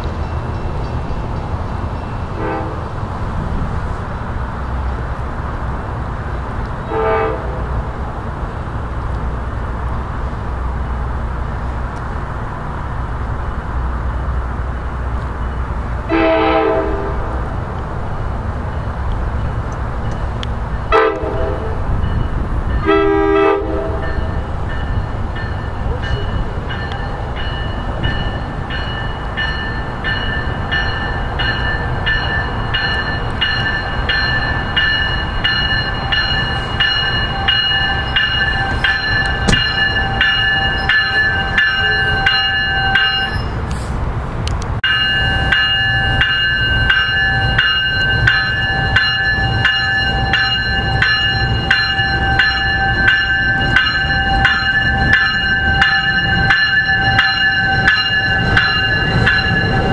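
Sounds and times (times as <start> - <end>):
train rumbling: 0.0 - 59.9
train horn blasts: 2.3 - 2.9, 6.8 - 7.8, 16.0 - 17.5, 20.9 - 21.9, 22.8 - 24.3
bell ringing: 24.0 - 43.6, 44.8 - 59.9.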